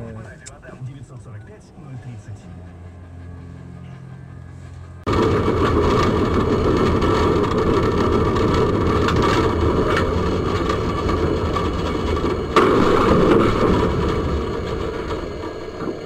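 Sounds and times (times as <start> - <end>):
tram rumbling: 0.0 - 16.0.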